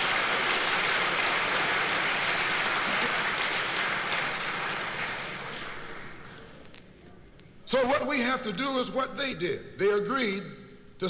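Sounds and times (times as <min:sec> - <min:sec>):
audience applause: 0:00.0 - 0:06.6.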